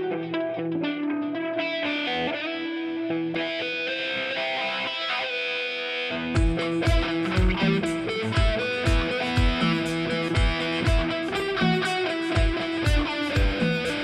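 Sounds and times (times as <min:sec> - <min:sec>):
guitar background music: 0:00.0 - 0:14.0
heavy low beat: 0:06.4 - 0:14.0.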